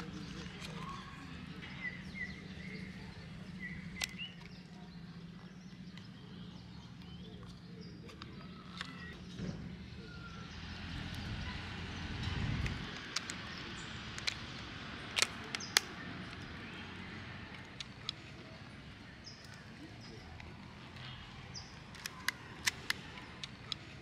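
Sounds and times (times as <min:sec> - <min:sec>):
bird chirps: 0:00.0 - 0:10.8
camera clicks: 0:21.8 - 0:23.9.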